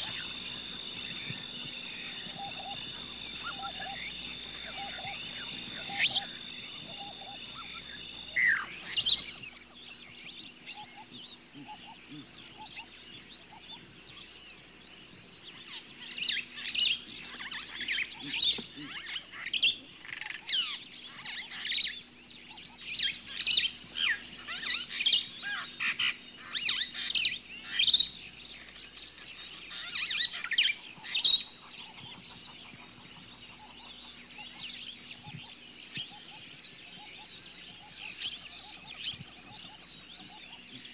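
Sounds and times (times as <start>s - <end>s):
higher buzzing tone: 0.0s - 8.9s
high-pitched background tone: 0.0s - 9.2s
songbirds chirping: 0.0s - 40.9s.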